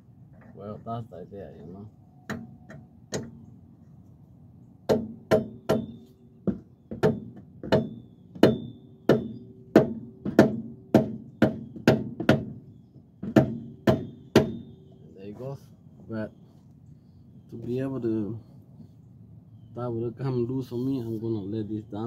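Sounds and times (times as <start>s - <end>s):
hammer striking metal: 2.3s - 3.3s.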